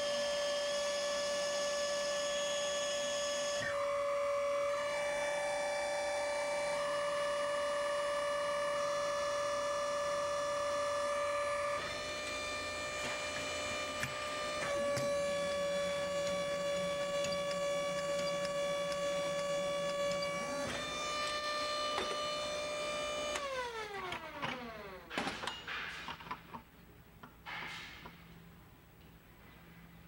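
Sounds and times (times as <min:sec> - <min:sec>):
hydraulic vibrator whining: 0:00.0 - 0:25.8
metallic knocks and clatter: 0:25.1 - 0:26.6.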